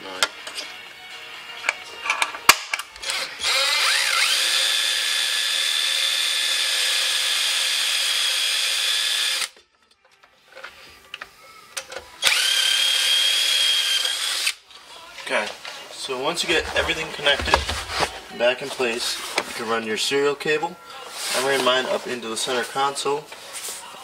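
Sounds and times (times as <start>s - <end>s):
cordless drill whining: 3.0s - 9.6s, 12.2s - 14.6s.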